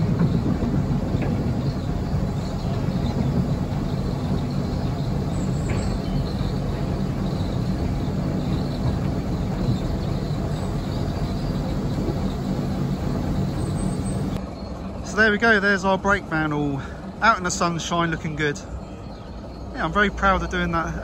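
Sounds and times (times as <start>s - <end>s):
diesel locomotive engine humming: 0.0s - 21.0s
wheels rumbling on rails: 0.0s - 21.0s.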